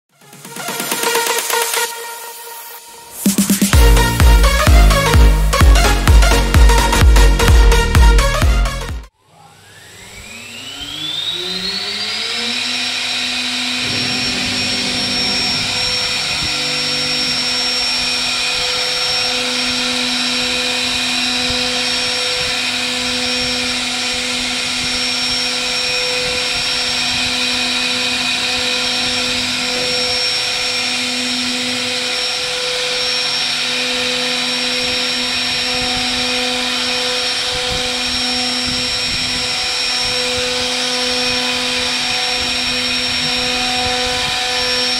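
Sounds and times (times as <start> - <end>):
router spindle whine: 9.1 - 44.9
low hum: 13.6 - 18.9.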